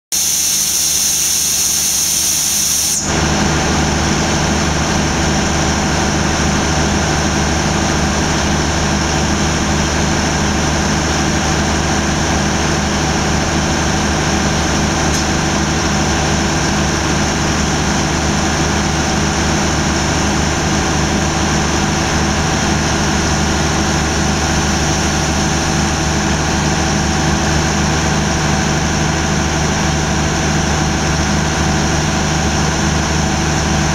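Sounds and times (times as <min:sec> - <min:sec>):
loud hiss: 0:00.1 - 0:03.1
diesel locomotive idling: 0:03.0 - 0:33.9.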